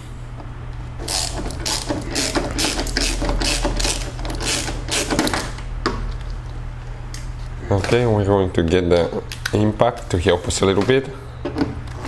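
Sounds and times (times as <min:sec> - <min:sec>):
ratchet pawl clicking: 0:01.1 - 0:05.4.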